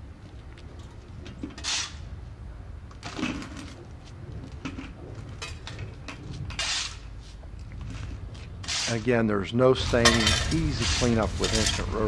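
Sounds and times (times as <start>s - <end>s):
shovel scraping concrete: 6.6s - 7.0s, 8.6s - 9.2s, 9.9s - 11.9s.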